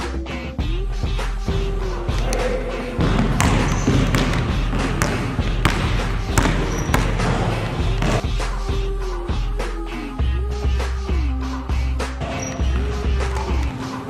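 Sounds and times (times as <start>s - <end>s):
background music: 0.0s - 14.0s
basketball bouncing on hardwood floor: 3.0s - 8.2s.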